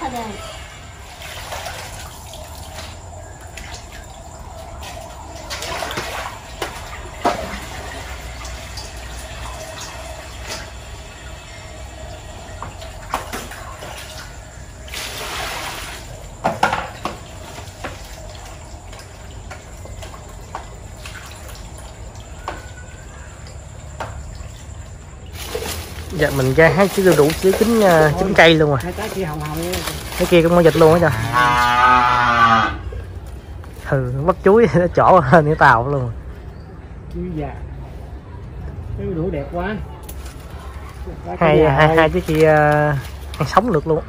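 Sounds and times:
tap water running into metal basin: 0.0 - 31.6
water splashing: 0.0 - 36.3, 39.8 - 44.0.

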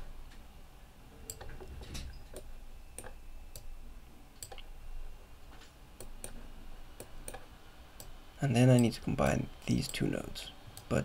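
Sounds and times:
computer mouse clicking: 1.3 - 1.7, 2.3 - 3.7, 4.4 - 4.7, 6.0 - 6.4, 7.0 - 9.0.

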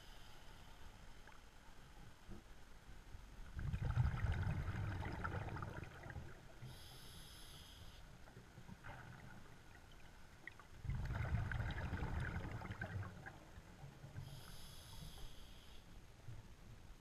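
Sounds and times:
hissing inhale through regulator: 0.0 - 1.0, 6.6 - 8.2, 14.2 - 16.0
exhaled bubbles rumbling: 3.5 - 6.6, 8.7 - 14.0.

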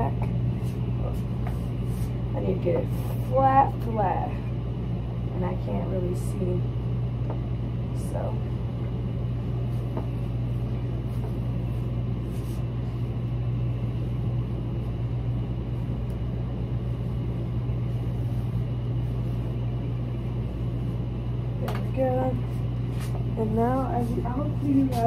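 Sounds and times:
low machine hum: 0.0 - 25.0
faint soft rustles: 9.6 - 13.3.

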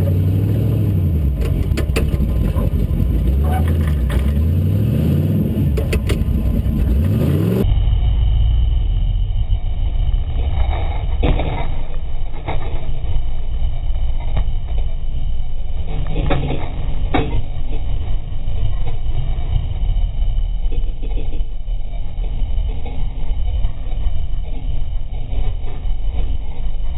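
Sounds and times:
engine revving: 0.0 - 11.7
knocks and bangs: 1.3 - 4.4, 5.6 - 7.2.

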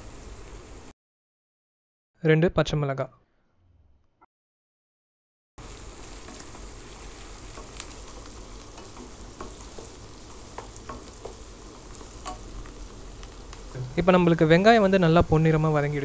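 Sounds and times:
vegetables sizzling in hot oil: 0.0 - 0.9, 5.6 - 16.0.

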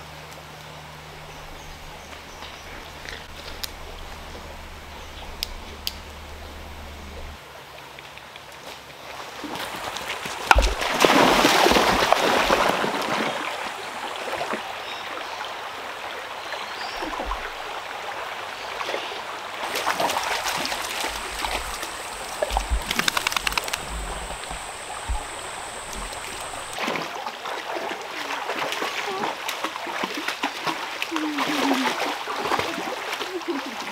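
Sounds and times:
creek running and gurgling: 0.0 - 8.1, 9.0 - 33.9
dogs splashing through water: 9.4 - 13.6, 18.8 - 33.9
thin high whine: 19.7 - 26.8.

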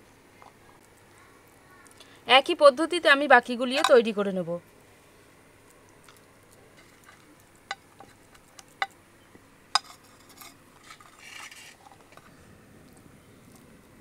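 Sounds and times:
knife scraping plate: 9.8 - 12.2.

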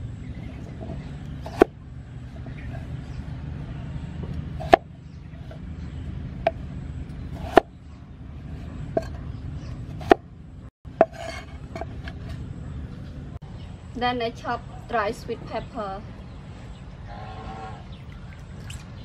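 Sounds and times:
cleaver chopping on wooden board: 1.4 - 1.8, 4.6 - 4.9, 7.4 - 7.7, 9.9 - 10.2.

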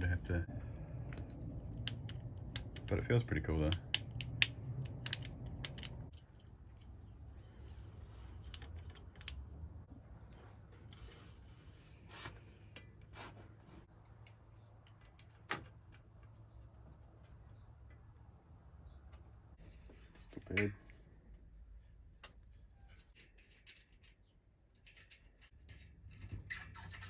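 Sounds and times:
bicycle shifter clicking: 3.7 - 6.0.

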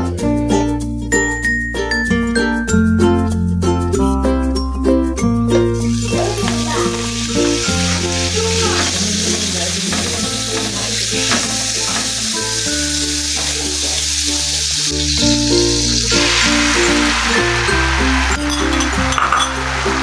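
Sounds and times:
background music: 0.0 - 11.1, 11.7 - 20.0
margarine sizzling in a frying pan: 5.6 - 20.0
egg poured into pan: 5.8 - 20.0.

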